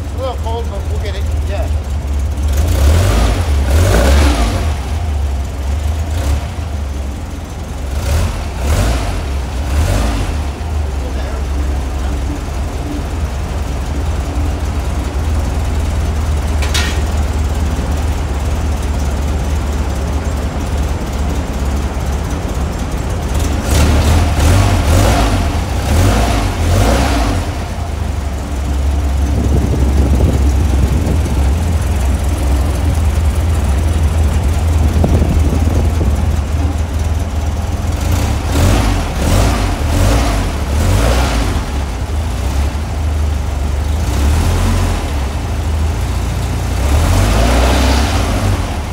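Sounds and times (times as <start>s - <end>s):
air-cooled engine idling: 0.0s - 48.9s
engine throttle blips: 0.0s - 48.9s.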